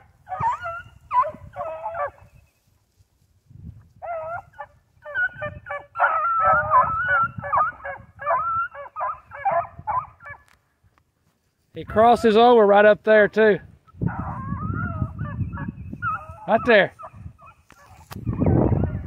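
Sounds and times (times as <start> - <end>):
puppies barking and baying: 0.3 - 2.3, 4.0 - 10.5, 14.1 - 19.0.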